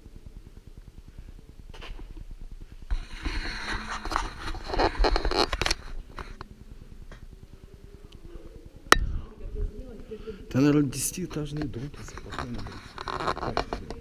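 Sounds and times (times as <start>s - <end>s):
phone handling rustling and scraping: 3.9s - 6.4s, 11.6s - 14.0s.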